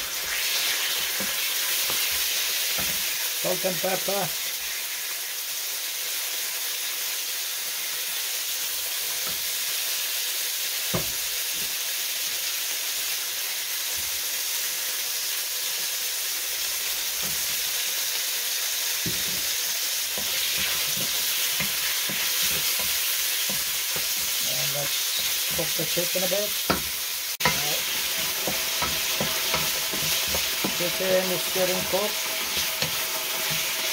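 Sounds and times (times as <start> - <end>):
food sizzling in hot oil: 0.0 - 33.9
knocks in a wok: 10.9 - 11.7, 19.0 - 19.5, 26.6 - 27.6.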